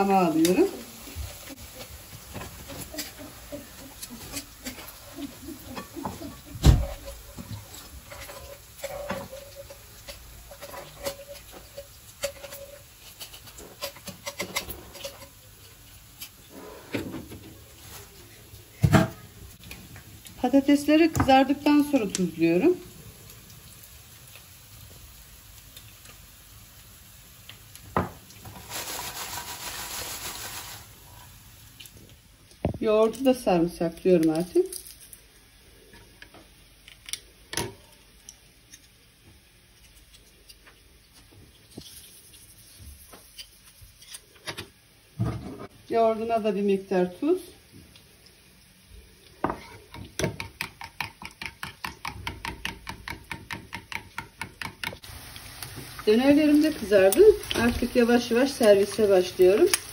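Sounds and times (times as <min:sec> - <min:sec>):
chips rustling in a bowl: 0:28.5 - 0:31.0.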